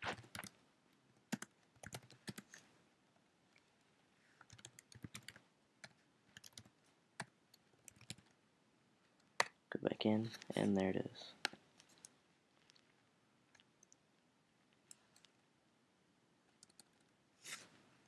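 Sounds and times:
computer keyboard typing: 0.2s - 0.6s, 1.2s - 2.6s, 4.4s - 8.3s, 16.6s - 17.0s.

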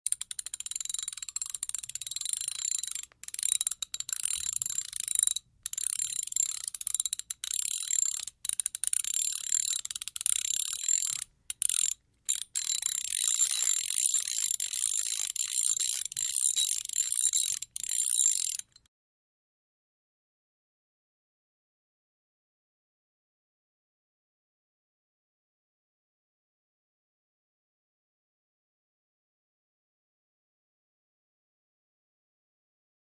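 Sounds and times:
ratchet wrench clicking: 0.1s - 18.8s.

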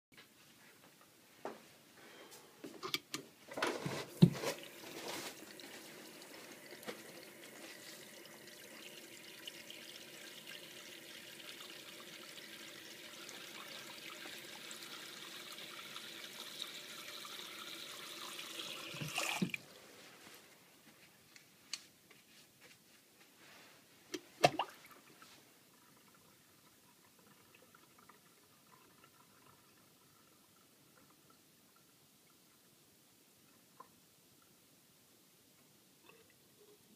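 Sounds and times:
tap running into basin: 17.1s - 19.6s.

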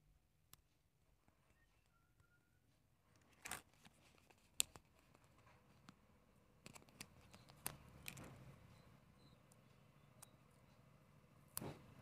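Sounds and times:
plastic toy parts handling: 3.2s - 5.5s.

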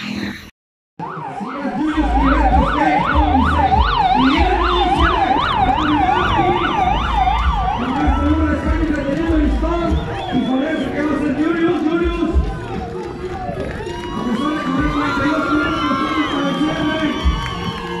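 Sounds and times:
siren rapid yelp: 1.0s - 18.0s.

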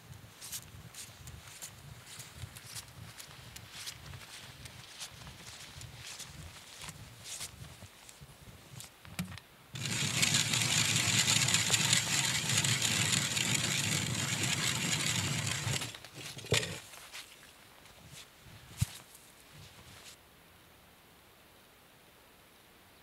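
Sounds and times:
ice auger grinding through ice: 9.8s - 16.8s.

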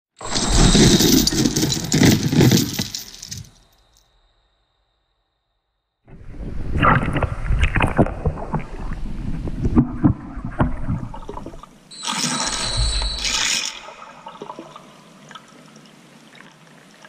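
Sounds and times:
metal chain clanking underwater: 0.2s - 3.9s, 11.9s - 14.9s
muffled churning water rumble: 6.1s - 11.9s.

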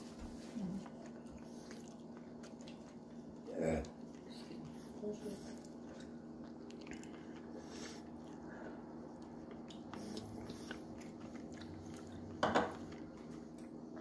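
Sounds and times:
steady low hum: 0.0s - 14.0s
dishes clicking and tapping: 12.4s - 12.8s.

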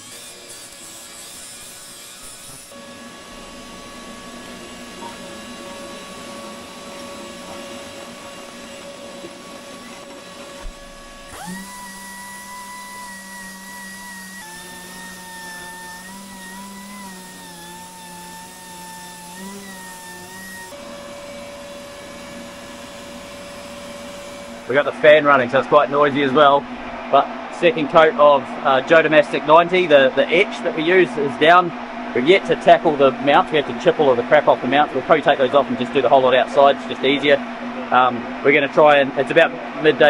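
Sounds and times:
air grinder whining: 0.0s - 28.3s
shop vacuum running: 0.0s - 40.0s
fan whirring: 2.1s - 40.0s.

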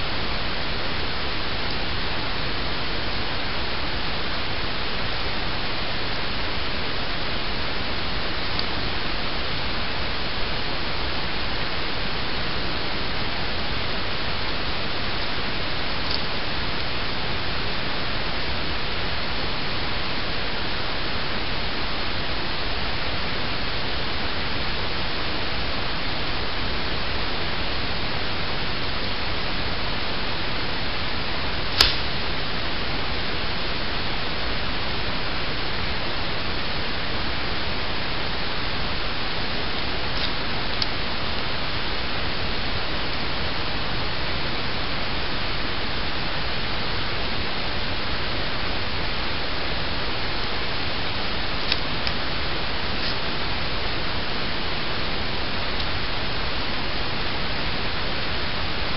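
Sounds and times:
static hiss: 0.0s - 58.9s
sharp click: 31.8s - 32.1s.

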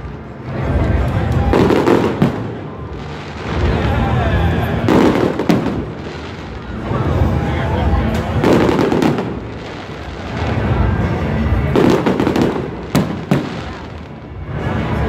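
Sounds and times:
firework crackling: 0.0s - 15.0s
firework shells booming: 4.7s - 6.9s, 8.1s - 14.2s.

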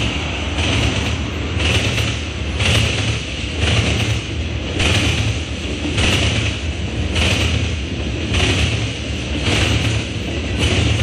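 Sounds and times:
freight train rolling past: 0.0s - 11.0s.

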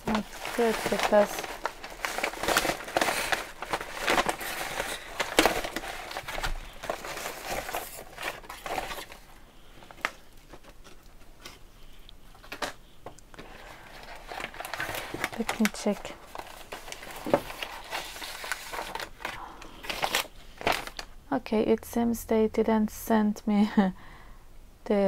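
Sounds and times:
light taps and packet rustles: 0.0s - 9.2s, 12.3s - 21.1s
plastic mailer bag crinkling: 0.0s - 11.6s, 13.4s - 21.2s.

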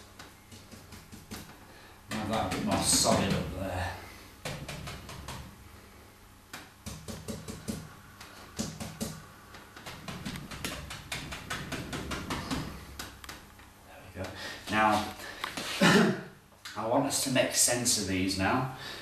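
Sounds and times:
paintbrush tapping on canvas: 0.2s - 3.6s, 6.5s - 13.5s.

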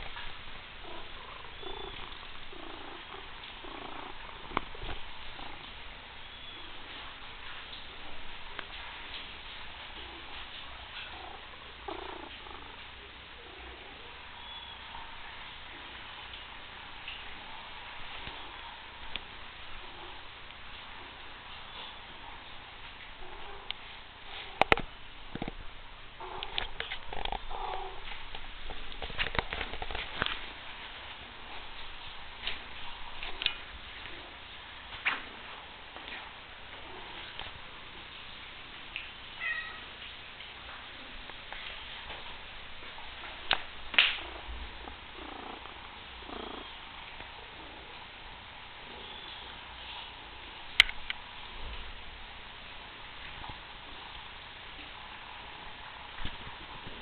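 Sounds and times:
cat purring: 0.0s - 25.0s, 26.1s - 38.1s, 42.0s - 50.6s.

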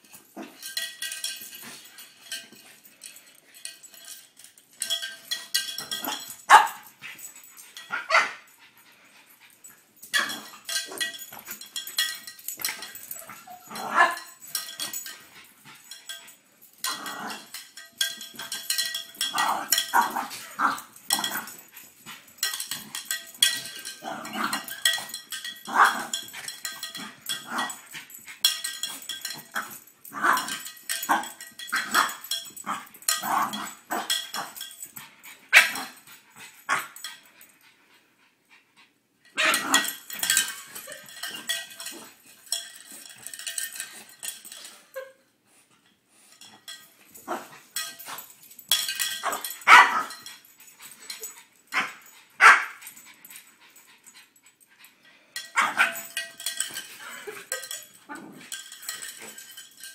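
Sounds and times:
small cowbell clanking: 0.0s - 37.6s, 39.3s - 45.2s, 45.8s - 59.9s
dog barking and growling: 5.9s - 6.9s, 7.8s - 8.5s, 12.7s - 14.8s, 19.2s - 27.9s, 39.4s - 42.0s, 49.1s - 50.3s, 51.7s - 52.8s, 55.6s - 56.2s.

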